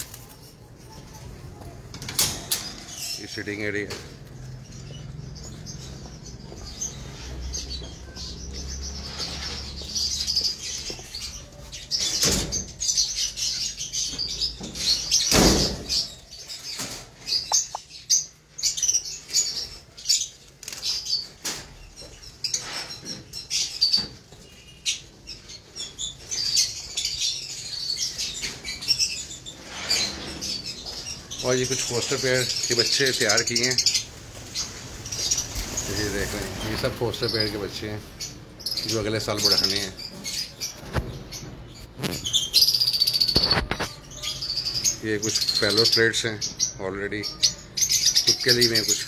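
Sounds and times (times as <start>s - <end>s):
lovebirds chirping: 0.0s - 49.0s.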